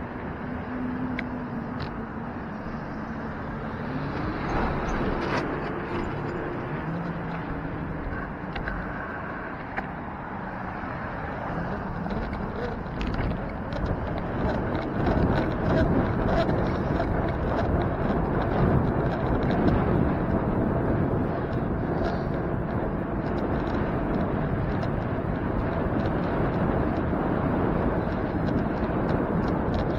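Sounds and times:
road rumble: 0:00.0 - 0:29.9
wind buffeting microphone: 0:00.0 - 0:29.9.

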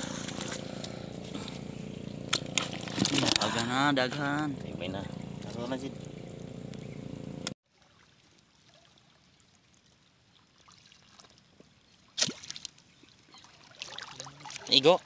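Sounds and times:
outdoor background noise: 0:00.0 - 0:15.0
rod splashing into shallow water: 0:02.3 - 0:03.6, 0:12.1 - 0:12.8.

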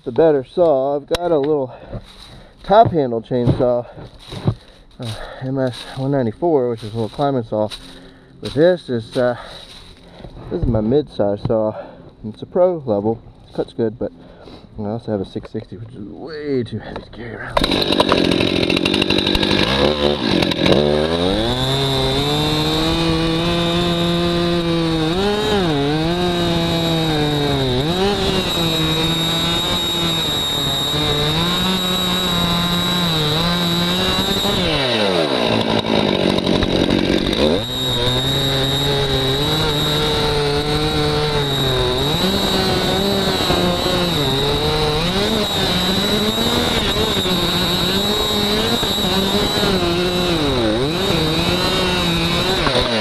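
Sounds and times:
chainsaw cutting wood: 0:03.5 - 0:05.9, 0:06.8 - 0:10.5, 0:17.6 - 0:53.0.

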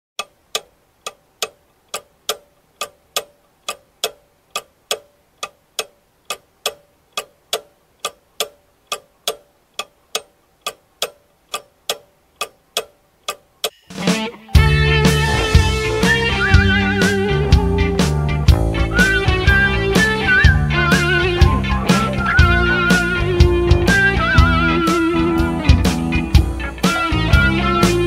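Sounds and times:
clock ticking: 0:00.2 - 0:28.0
rock band music: 0:13.8 - 0:28.0.

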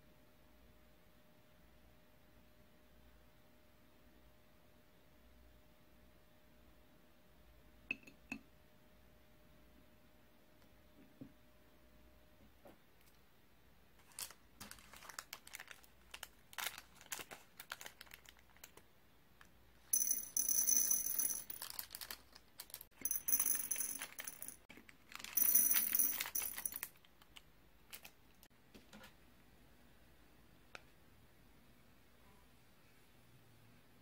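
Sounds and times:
plastic packets crinkling: 0:14.0 - 0:18.8, 0:21.4 - 0:22.9, 0:23.9 - 0:28.4
candy beads clattering into bowls: 0:19.9 - 0:27.0.

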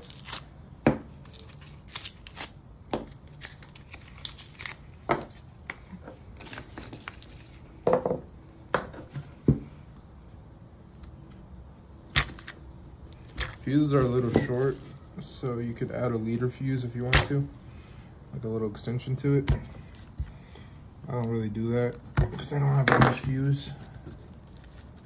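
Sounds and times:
paper tearing and rustling: 0:00.0 - 0:00.5, 0:01.1 - 0:05.5, 0:22.4 - 0:25.0.

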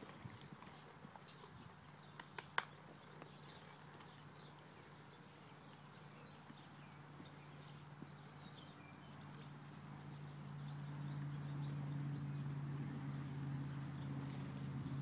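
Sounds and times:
horse hoofbeats on soft dirt: 0:00.0 - 0:15.0.

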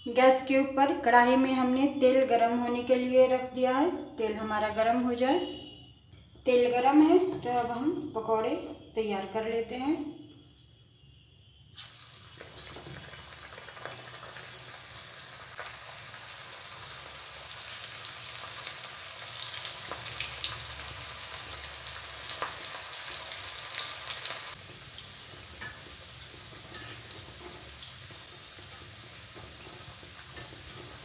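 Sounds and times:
batter deep-frying in hot oil: 0:11.0 - 0:31.0.

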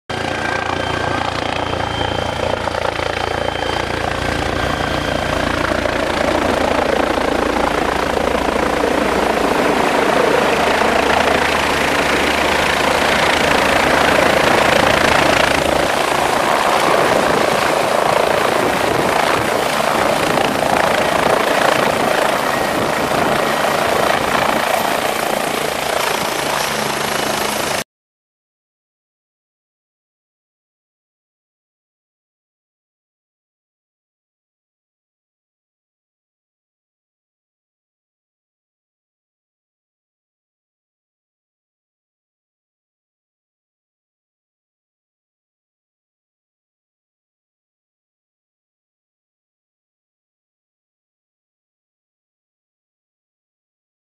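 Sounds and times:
helicopter rotor beat: 0:00.1 - 0:27.8
turbine engine whine: 0:00.1 - 0:27.8.

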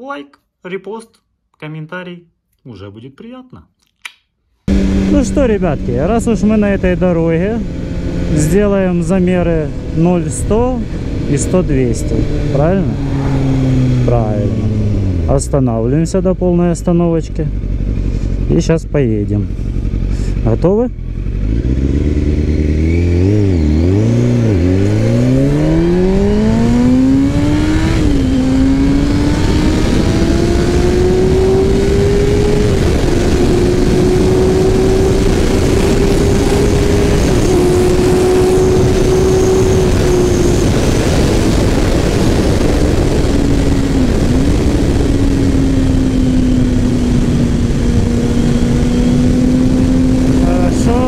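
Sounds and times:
dense rushing noise: 0:04.7 - 0:16.7, 0:32.6 - 0:49.2
motorcycle engine revving: 0:04.7 - 0:51.0.

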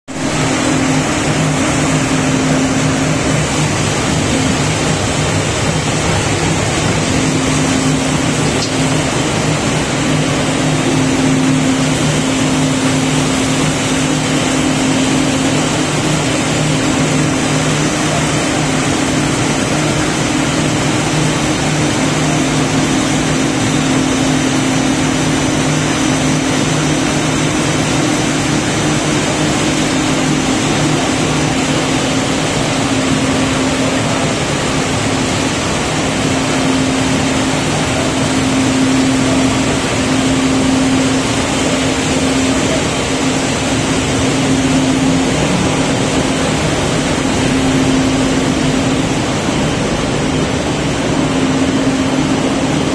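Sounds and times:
machinery humming: 0:00.1 - 0:52.9.

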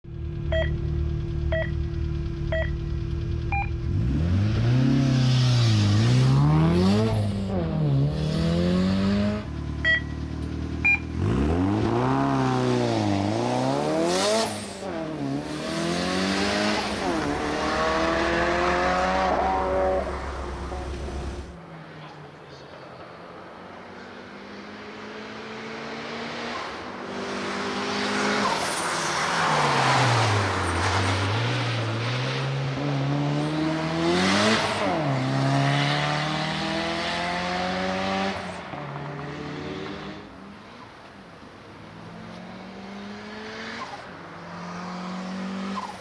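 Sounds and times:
race car engine idling and revving: 0:00.0 - 0:46.0
timing beeps: 0:00.5 - 0:00.8, 0:01.5 - 0:01.8, 0:02.5 - 0:02.8, 0:03.5 - 0:03.8, 0:09.8 - 0:10.2, 0:10.8 - 0:11.2.

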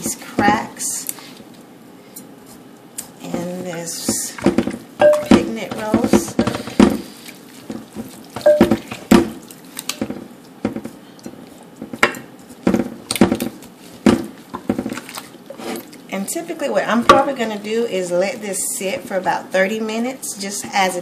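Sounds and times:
wet squishes of meat being rubbed: 0:00.0 - 0:16.3.

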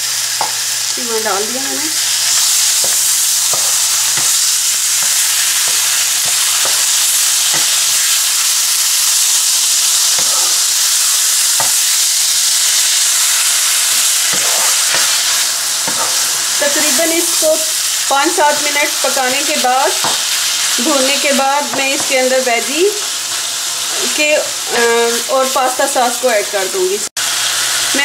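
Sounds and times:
meat and onions sizzling in oil: 0:00.0 - 0:28.0
wooden spatula scraping a pan: 0:09.4 - 0:10.8, 0:14.2 - 0:16.4.

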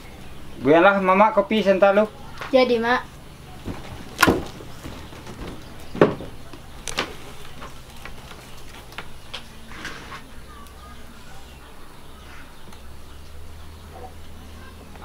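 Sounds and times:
faint bird chirps: 0:09.1 - 0:15.0.

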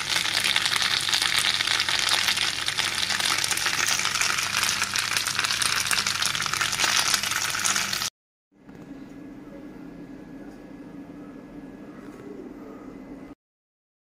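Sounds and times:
food sizzling in a pan: 0:00.0 - 0:08.1.

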